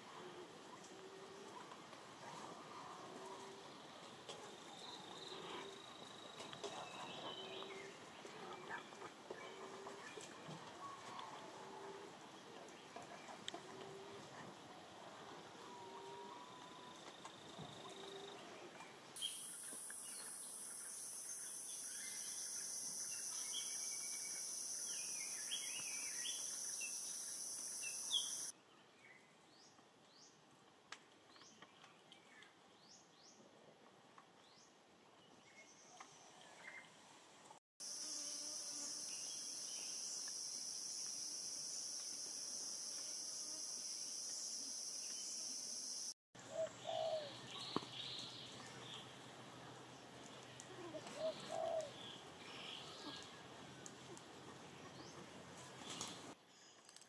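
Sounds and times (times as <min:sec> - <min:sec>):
insects droning: 0:19.2 - 0:28.5, 0:37.8 - 0:46.1
loud bird calls: 0:46.5 - 0:48.3, 0:51.0 - 0:53.3.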